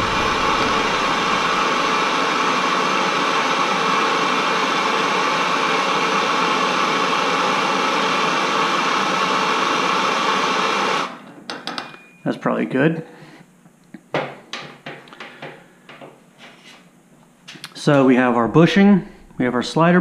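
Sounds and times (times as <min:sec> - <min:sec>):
gas torch hissing: 0:00.0 - 0:11.1.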